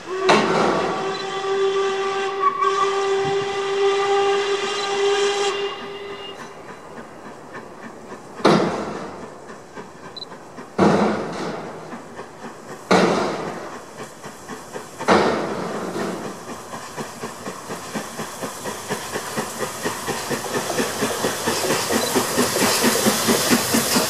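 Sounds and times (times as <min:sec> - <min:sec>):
steam locomotive whistle: 0:00.0 - 0:06.7.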